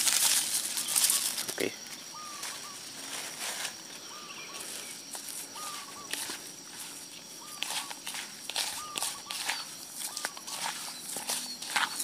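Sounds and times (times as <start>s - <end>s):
bird whistled call: 2.1s - 2.8s
hands kneading bait in plastic bowl: 7.6s - 12.0s.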